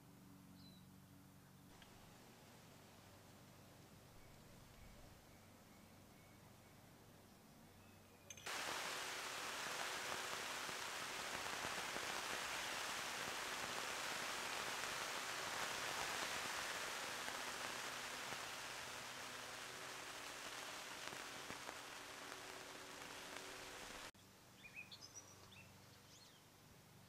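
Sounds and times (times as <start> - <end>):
rain pattering on tent: 8.4 - 24.1.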